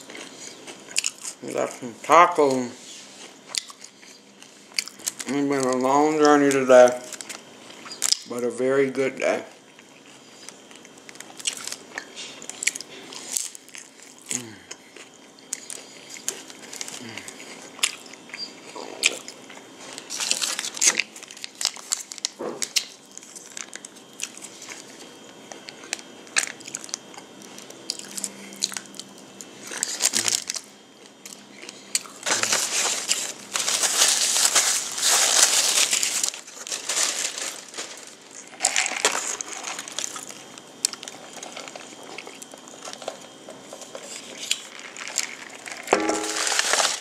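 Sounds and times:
crunchy tacos being chewed: 0.0 - 8.3, 9.6 - 47.0
paper wrapper crinkling: 19.9 - 22.3, 32.2 - 47.0.

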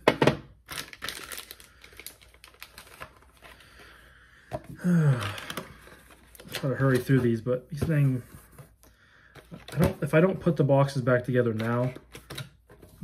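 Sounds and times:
packaging rustling and crinkling: 0.6 - 4.0, 5.1 - 8.3.

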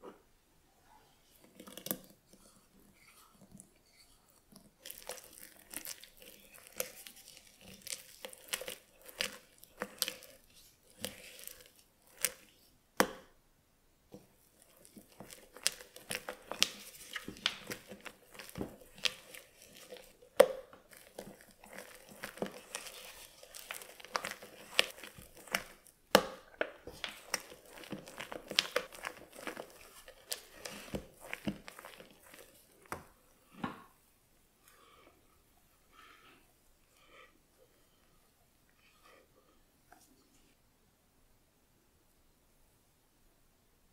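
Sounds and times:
spatula squelching thick batter: 0.9 - 13.2, 14.1 - 34.0.

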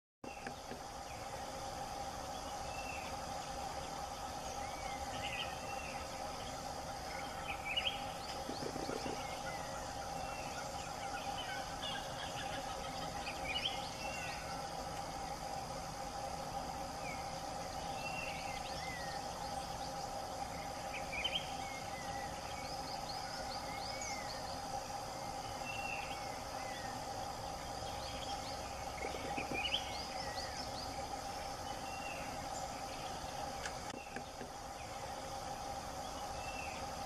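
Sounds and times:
insects droning: 0.2 - 37.0
birds chirping and whistling: 4.4 - 14.6, 17.1 - 20.2.

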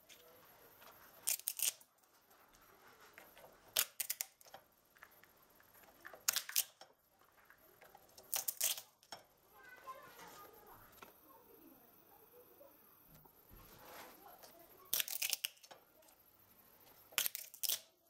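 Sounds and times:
walnuts cracking in a lever cracker: 1.2 - 1.9, 3.3 - 5.2, 5.8 - 9.2, 14.9 - 15.9, 17.1 - 18.0.

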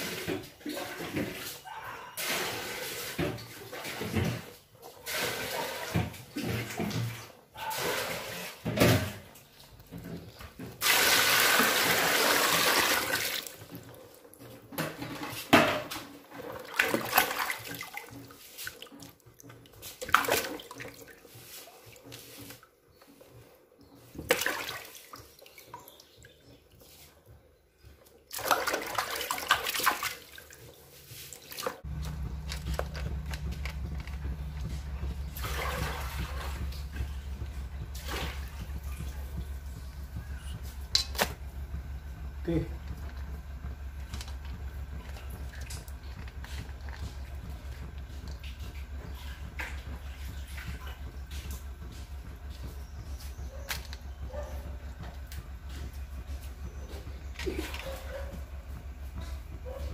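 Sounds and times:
water sloshing in a basin: 0.0 - 59.9
steady low hum: 31.8 - 59.9.

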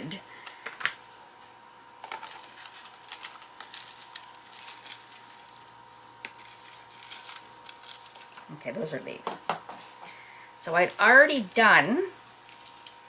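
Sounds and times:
clicks and rustles of dried leaves: 2.0 - 8.6, 10.6 - 13.0.

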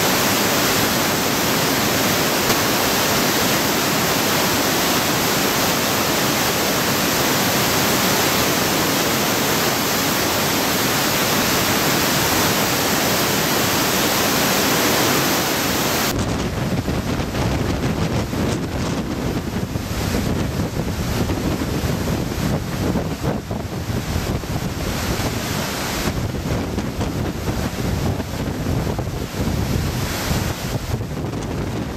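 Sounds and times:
floodwater churning around bridge piers: 0.0 - 31.9
river in flood rushing roar: 0.0 - 31.9
wind buffeting microphone: 15.9 - 31.9.

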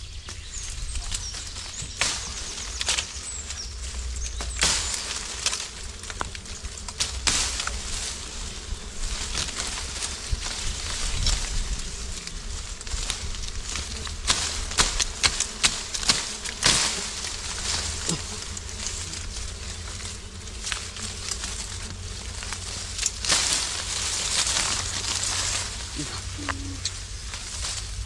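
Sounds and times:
leafy branches rustling: 0.0 - 28.0
steady low rumble: 0.0 - 28.0
sharp snaps and knocks: 1.0 - 3.2, 3.9 - 7.9, 12.8 - 19.0, 19.9 - 25.7.

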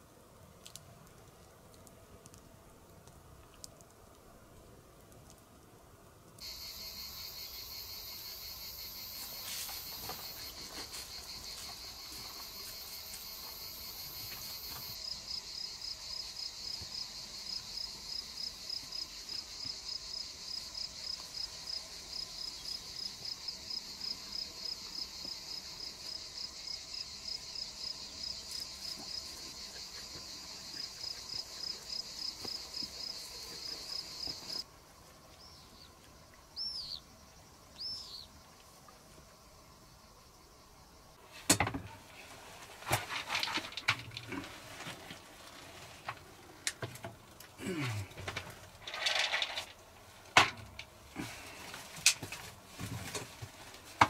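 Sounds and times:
insects singing shrilly: 6.4 - 16.7.

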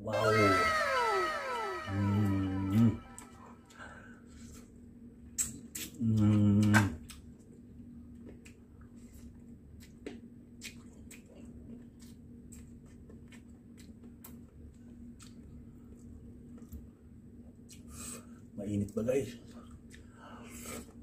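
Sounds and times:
wet chewing and squishing: 8.2 - 14.4.

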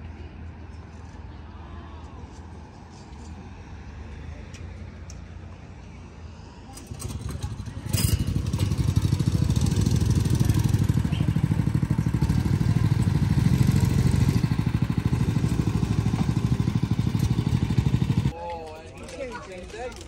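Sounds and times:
go-kart engines droning: 6.7 - 18.4.

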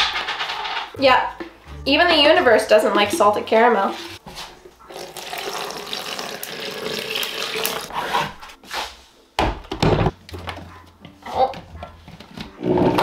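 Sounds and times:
tap water running into sink: 4.9 - 7.9.

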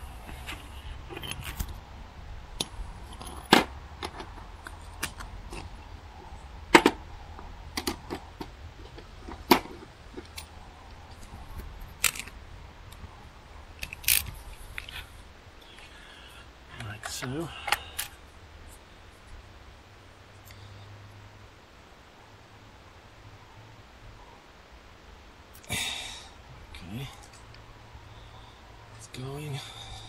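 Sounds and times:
low steady rumble: 0.0 - 30.0
metal tools clinking: 0.4 - 1.8.

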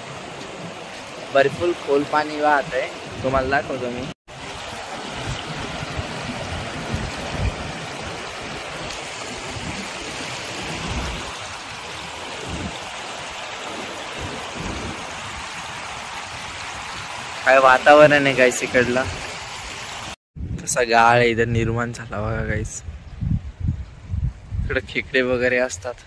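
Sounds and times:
wind rumble on microphone: 2.5 - 17.4, 20.4 - 26.0
water rushing through pipes: 4.3 - 20.2.

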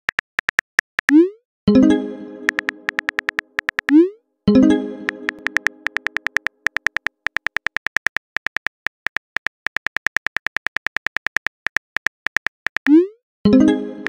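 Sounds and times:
keyboard typing clicks: 0.1 - 1.4, 2.4 - 4.2, 5.0 - 13.1.

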